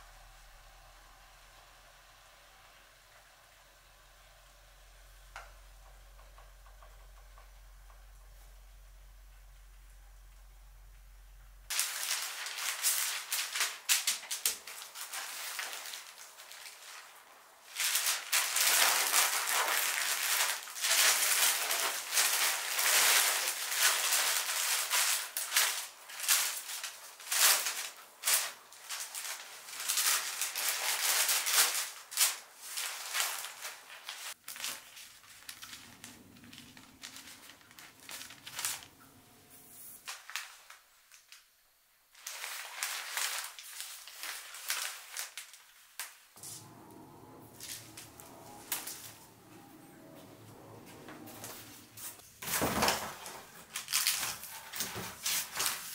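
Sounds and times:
faint low hum: 0:00.0 - 0:30.7, 0:32.8 - 0:42.3, 0:46.4 - 0:55.8
crinkly wrapping rustling: 0:11.7 - 0:41.5, 0:42.2 - 0:55.9.

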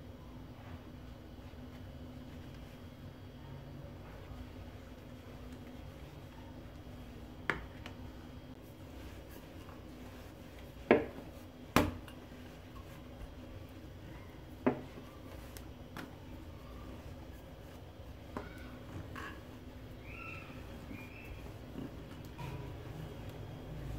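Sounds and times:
faint steady hum: 0:00.0 - 0:23.9
faint high chirps: 0:20.0 - 0:21.6.

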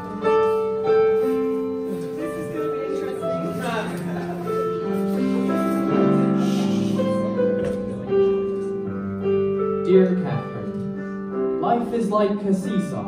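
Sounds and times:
keyboard piano accompaniment: 0:00.0 - 0:13.0.

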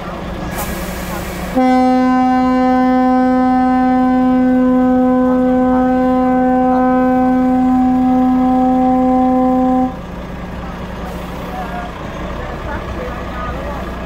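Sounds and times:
lorry air horn blast: 0:01.5 - 0:10.0.

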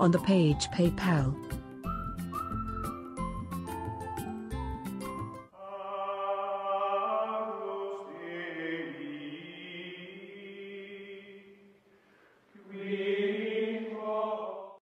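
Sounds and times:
choir holding long notes: 0:05.6 - 0:11.6, 0:12.6 - 0:14.8.

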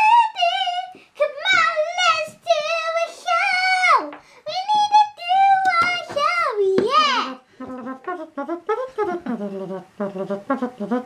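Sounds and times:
child singing wordless notes: 0:00.0 - 0:08.8.

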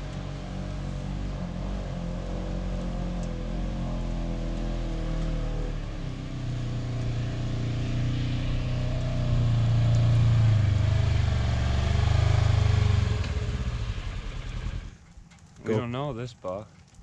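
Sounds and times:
utility vehicle engine driving: 0:00.0 - 0:15.6.

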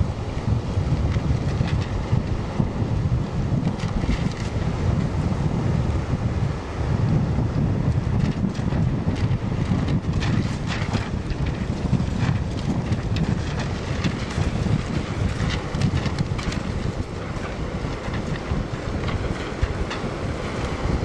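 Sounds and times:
wind buffeting microphone: 0:00.0 - 0:21.0
short crackles: 0:03.6 - 0:04.7, 0:08.2 - 0:20.8.

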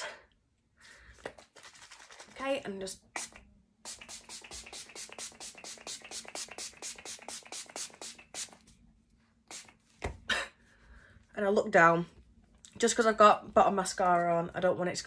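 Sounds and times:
spray bottle spritzing: 0:03.1 - 0:08.6, 0:09.5 - 0:09.8.

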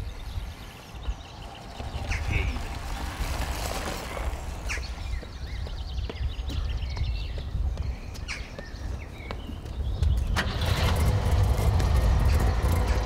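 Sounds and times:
car engine and road noise: 0:00.0 - 0:06.5, 0:09.7 - 0:13.0.

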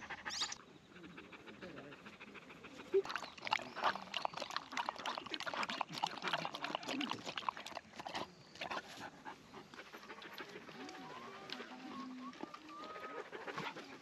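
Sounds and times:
dog lapping water: 0:02.9 - 0:10.8.

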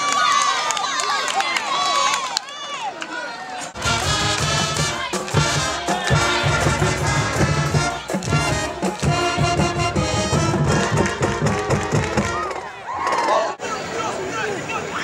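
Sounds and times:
steady drum beat: 0:03.8 - 0:12.6
marching band brass melody: 0:03.8 - 0:12.7.

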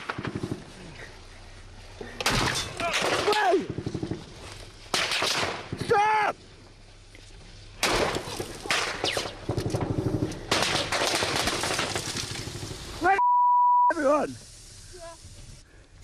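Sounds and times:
person shouting: 0:05.8 - 0:06.4
automatic gunfire: 0:07.8 - 0:12.1
steady high beep: 0:13.2 - 0:14.0.

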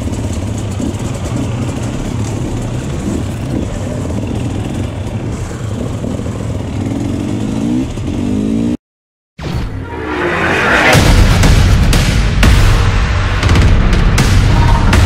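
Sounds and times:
motorcycle engine accelerating: 0:00.0 - 0:08.8.

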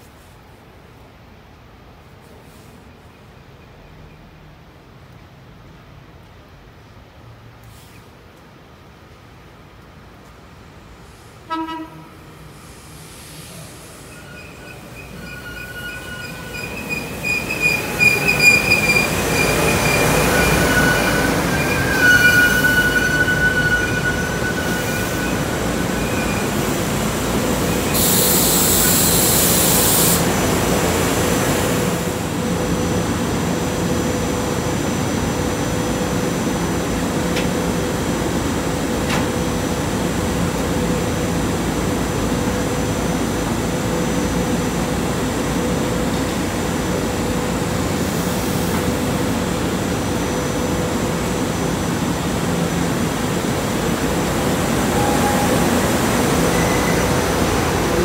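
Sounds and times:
train humming: 0:08.6 - 0:58.0
train wheels squealing: 0:13.5 - 0:29.3, 0:54.7 - 0:57.8
air hissing: 0:16.8 - 0:30.4.

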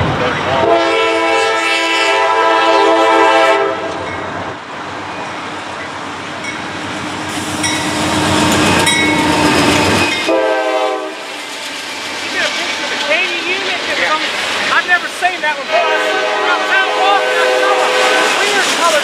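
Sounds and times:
locomotive diesel engines rumbling: 0:00.0 - 0:19.0
locomotive air horn: 0:00.5 - 0:04.0, 0:09.2 - 0:11.2, 0:15.7 - 0:18.6.

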